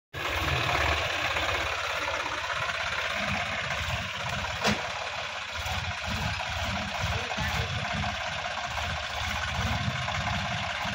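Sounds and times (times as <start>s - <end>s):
tractor diesel engine running: 0.1s - 10.9s.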